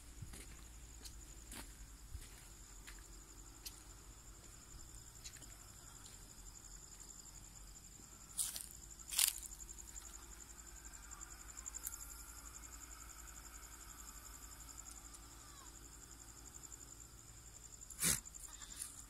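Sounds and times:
crickets trilling: 0:00.0 - 0:19.0.

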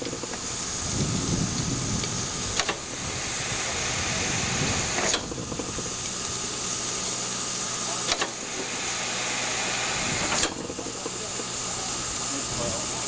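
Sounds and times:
steam locomotive hissing: 0:00.0 - 0:13.0
sharp click: 0:08.1 - 0:08.4.

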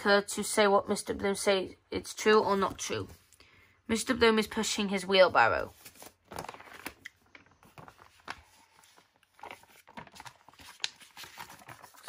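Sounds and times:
paper rustling: 0:05.5 - 0:12.0
small taps and crinkles: 0:05.8 - 0:12.0.

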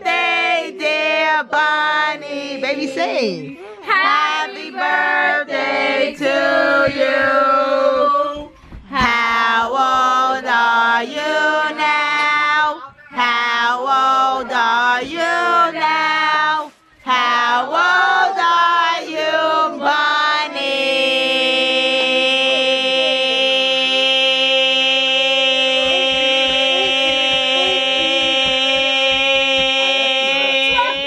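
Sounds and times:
person singing: 0:03.5 - 0:31.0
held musical notes: 0:25.3 - 0:29.7.

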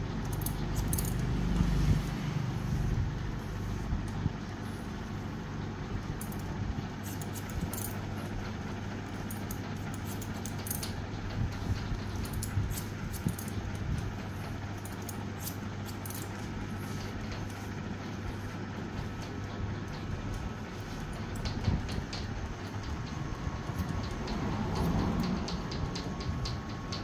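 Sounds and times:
low background hum: 0:00.0 - 0:27.0
scissors snipping hair: 0:07.0 - 0:08.0, 0:12.2 - 0:13.6, 0:14.8 - 0:16.4.

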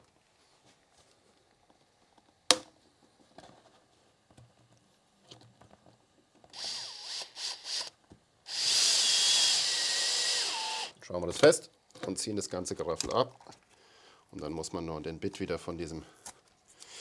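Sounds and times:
cordless drill motor whirring: 0:06.5 - 0:11.0
drill click: 0:06.5 - 0:11.0.

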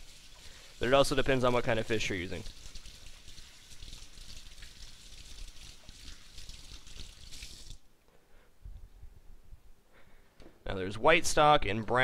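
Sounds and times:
tap water running into sink: 0:00.0 - 0:07.8.

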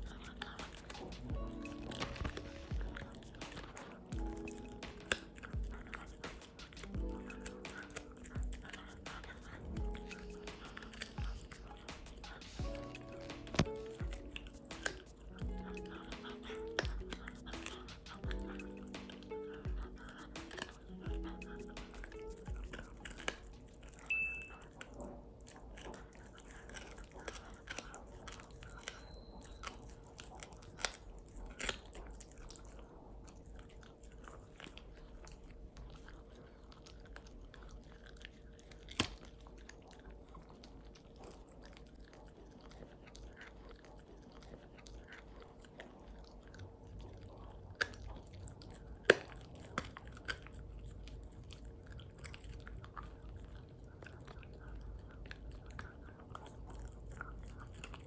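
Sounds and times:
dog chewing: 0:00.0 - 0:58.0
sharp cracks of biting: 0:00.1 - 0:24.0, 0:38.8 - 0:39.4, 0:49.0 - 0:50.6.

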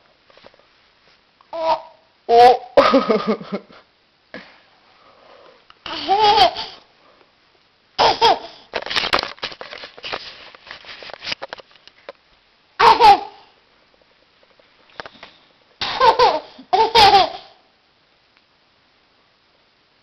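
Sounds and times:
small child laughing and babbling: 0:05.8 - 0:06.8, 0:08.0 - 0:08.6, 0:12.8 - 0:13.5.

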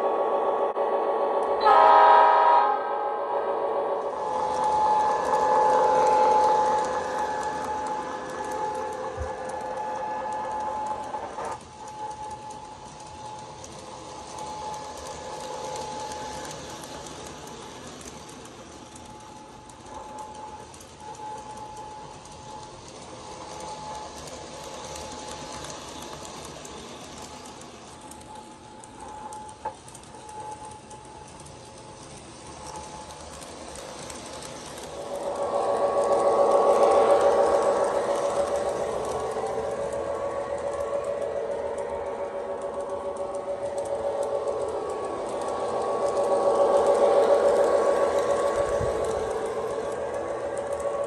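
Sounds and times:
toy train horn: 0:01.4 - 0:18.1, 0:32.4 - 0:51.0
toy train motor whirring: 0:04.0 - 0:51.0.

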